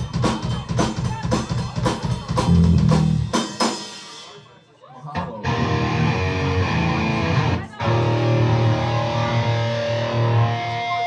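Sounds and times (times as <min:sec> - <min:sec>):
electric guitars and bass chords: 0:05.2 - 0:11.0.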